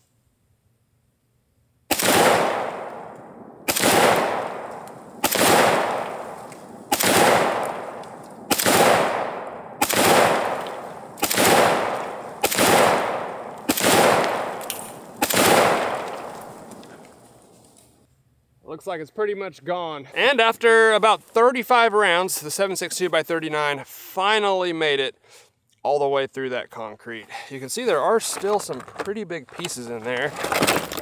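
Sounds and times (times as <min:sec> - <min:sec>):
rifle shots with long echo: 0:01.9 - 0:17.5.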